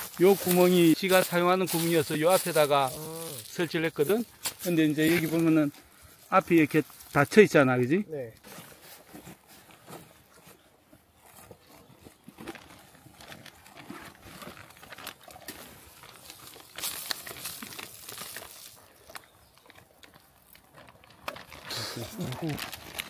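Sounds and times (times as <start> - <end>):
plastic bag crinkling: 0.0 - 7.4, 11.7 - 23.0.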